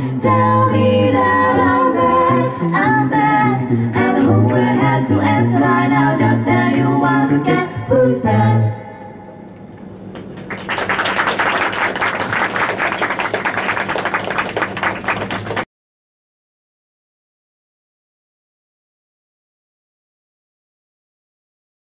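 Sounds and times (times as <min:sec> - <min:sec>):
a cappella group singing: 0:00.0 - 0:09.2
audience applauding: 0:10.3 - 0:15.7.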